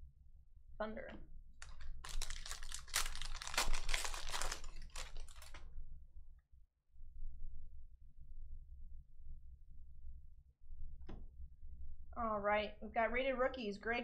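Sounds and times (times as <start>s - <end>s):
foil wrapper tearing and crinkling: 1.6s - 5.7s.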